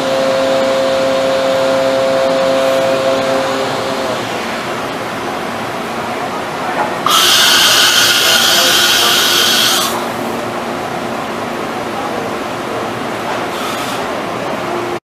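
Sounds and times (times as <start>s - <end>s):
machine running with steady hum: 0.0s - 15.0s
loud high hiss: 7.0s - 10.7s.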